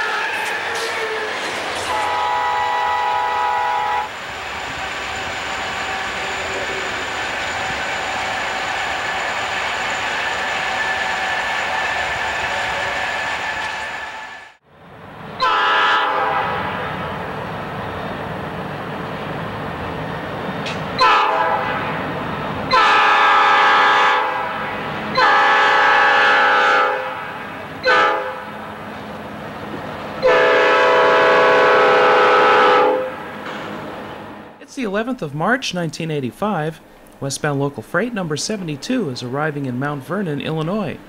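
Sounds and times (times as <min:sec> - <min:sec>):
locomotive air horn blasts: 0:01.8 - 0:04.1, 0:15.4 - 0:16.9, 0:21.0 - 0:22.0, 0:22.7 - 0:28.6, 0:30.2 - 0:33.3.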